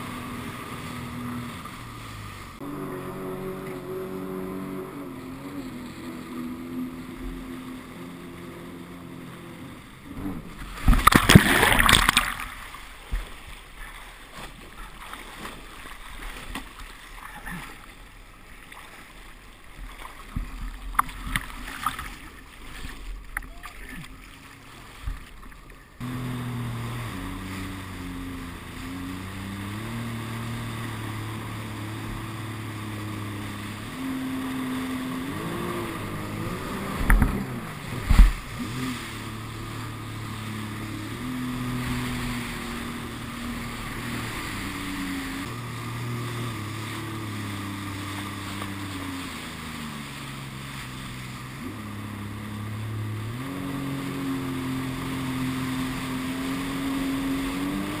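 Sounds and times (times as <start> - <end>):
jet ski engine revving: 0.0 - 22.8, 25.7 - 58.0
water rushing past hull: 0.0 - 58.0
hull slamming onto waves: 10.1 - 13.6, 35.1 - 51.1.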